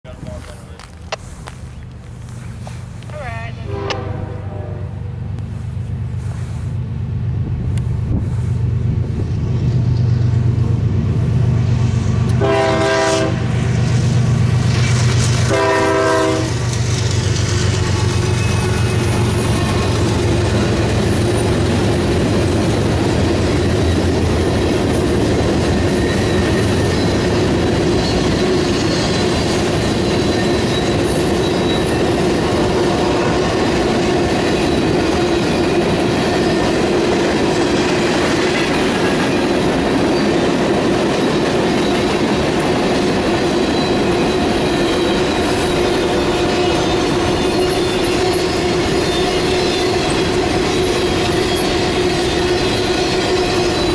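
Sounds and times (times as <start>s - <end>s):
train wheels rumbling on rails: 0.0s - 53.9s
high wheel squeals: 22.4s - 32.8s, 43.6s - 53.9s.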